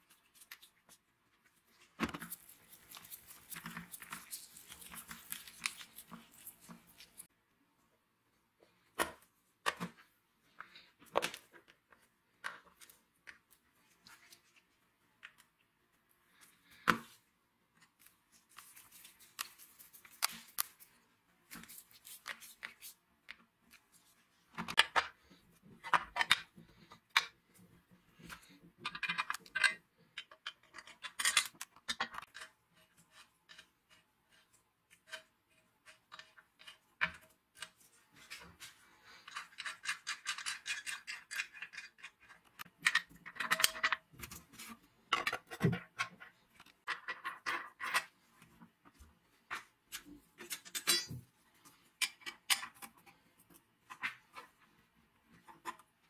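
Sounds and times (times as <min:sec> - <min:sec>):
plastic and metal parts clicking: 0:28.2 - 0:33.7, 0:39.2 - 0:48.1.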